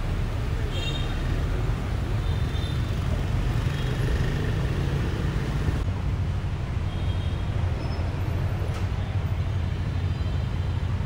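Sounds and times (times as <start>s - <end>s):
low rumble of bus: 0.0s - 11.0s
passing cars and motorbikes: 0.0s - 11.0s.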